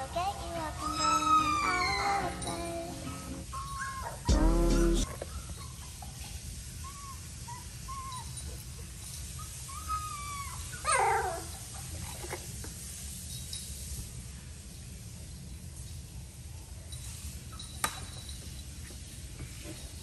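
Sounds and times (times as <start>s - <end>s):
puppy yelp: 0.8s - 2.6s, 3.5s - 12.4s
puppies whimpering: 0.8s - 2.8s, 3.5s - 6.1s, 6.8s - 8.8s, 9.4s - 11.6s.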